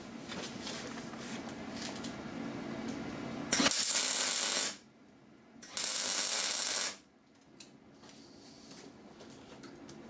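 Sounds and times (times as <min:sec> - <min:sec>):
welder arc crackling and hissing: 0:03.5 - 0:04.9, 0:05.6 - 0:07.1.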